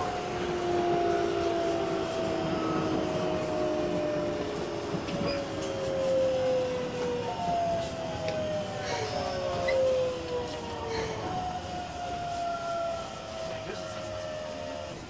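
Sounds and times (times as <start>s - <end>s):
train motor whine: 0.0s - 15.0s
train running noise: 0.0s - 15.0s.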